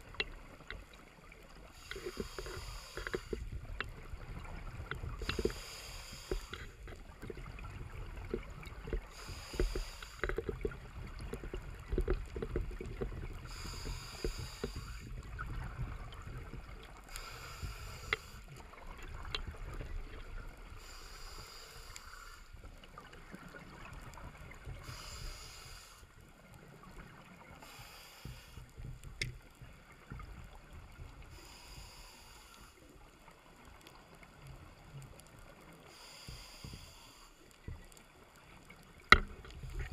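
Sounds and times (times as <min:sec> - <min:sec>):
low rumble of bubbles: 0:00.0 - 0:05.6, 0:06.2 - 0:20.8, 0:37.6 - 0:39.9
regulator breathing hiss: 0:01.7 - 0:03.5, 0:05.2 - 0:06.8, 0:09.0 - 0:10.6, 0:13.5 - 0:15.1, 0:17.1 - 0:18.6, 0:20.8 - 0:22.6, 0:24.8 - 0:26.1, 0:27.6 - 0:28.8, 0:31.3 - 0:32.8, 0:35.8 - 0:37.6.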